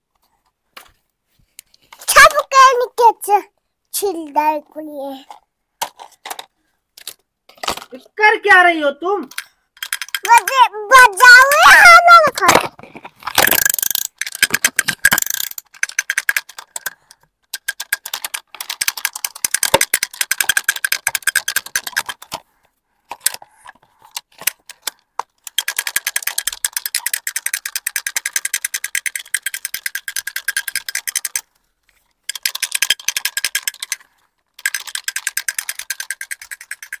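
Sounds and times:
plastic toy ratchet clicking: 0:09.3 - 0:22.4, 0:23.1 - 0:31.5, 0:32.2 - 0:37.0.

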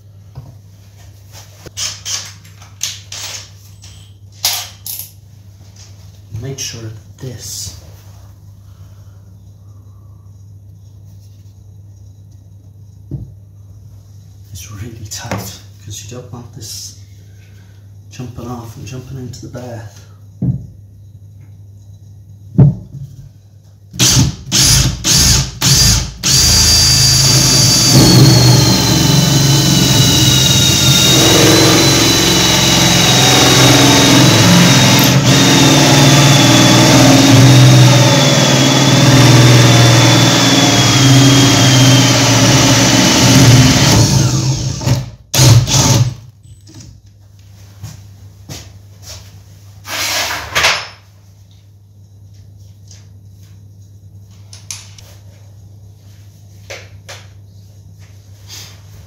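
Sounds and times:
cordless drill cutting with hole saw: 0:24.0 - 0:46.2
drill motor whine: 0:24.0 - 0:46.2.

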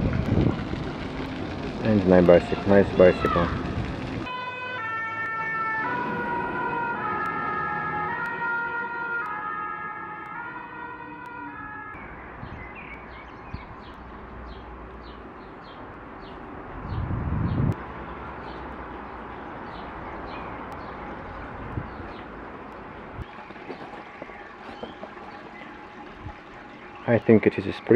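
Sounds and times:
outdoor background noise: 0:00.0 - 0:27.9
two-tone fire engine siren: 0:04.2 - 0:12.6
bird chirping: 0:12.0 - 0:17.7, 0:23.3 - 0:27.2.

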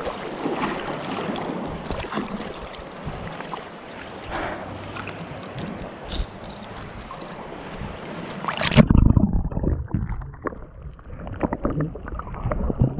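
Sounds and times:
water splash: 0:00.0 - 0:03.7, 0:04.3 - 0:12.9
seawater lapping and sloshing: 0:00.0 - 0:08.9.

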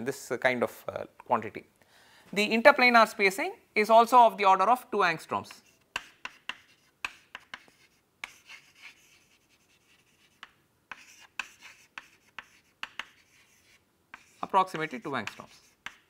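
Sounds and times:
chalk tapping and scratching: 0:05.5 - 0:16.0.

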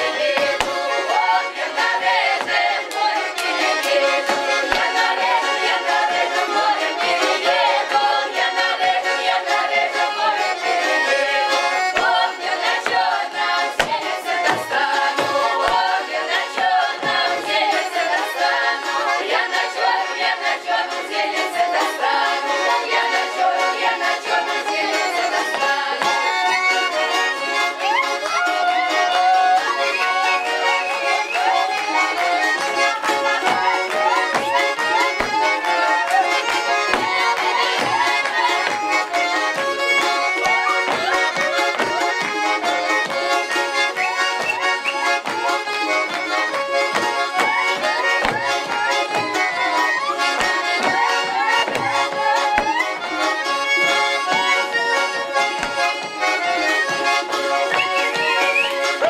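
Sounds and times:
button accordion folk dance tune: 0:00.0 - 0:59.0
feet stamping on wooden floor: 0:13.8 - 0:15.9, 0:46.9 - 0:49.4, 0:50.3 - 0:53.0, 0:55.6 - 0:57.1.

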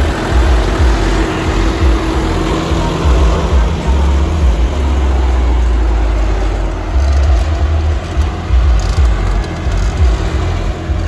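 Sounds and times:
tractor diesel engine under load: 0:00.0 - 0:11.0.

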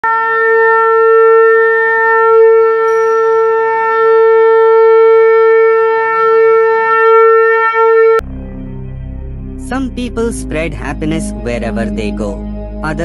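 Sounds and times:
conch shell blown: 0:00.0 - 0:09.6.

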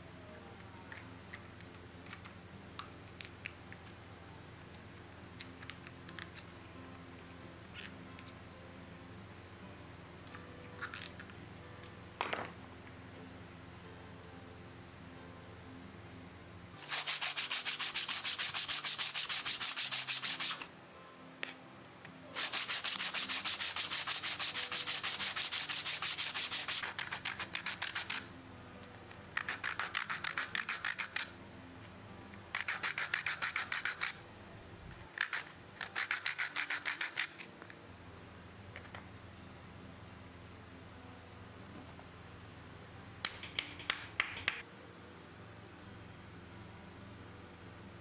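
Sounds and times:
wood rubbing on sandpaper: 0:16.8 - 0:20.7, 0:22.4 - 0:28.3, 0:29.4 - 0:31.3, 0:32.6 - 0:34.2, 0:35.2 - 0:37.5.

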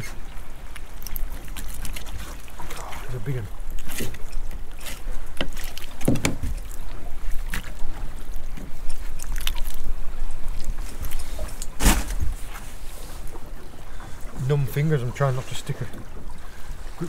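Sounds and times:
water around a boat: 0:00.0 - 0:17.0
wind: 0:00.0 - 0:17.0
knocks and clicks of bait handling: 0:05.4 - 0:06.6.

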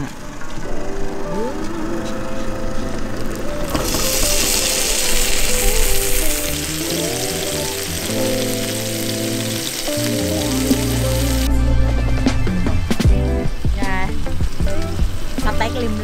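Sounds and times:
background music: 0:00.0 - 0:16.0
steak sizzling in butter: 0:03.3 - 0:11.5.

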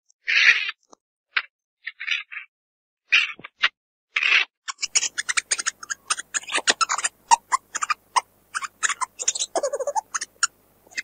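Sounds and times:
meerkat chirps and clicks: 0:03.3 - 0:11.0
longer lower meerkat calls: 0:04.8 - 0:11.0.

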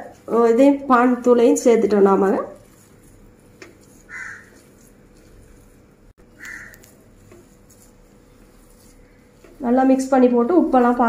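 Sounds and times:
crow cawing: 0:04.1 - 0:04.5, 0:06.4 - 0:06.8.

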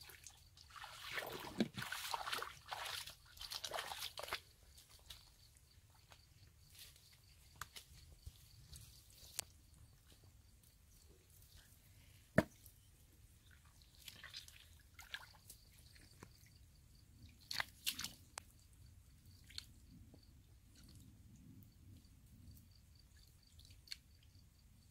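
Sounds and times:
hands squelching through mud: 0:00.1 - 0:05.4, 0:13.8 - 0:16.1, 0:17.4 - 0:18.3.

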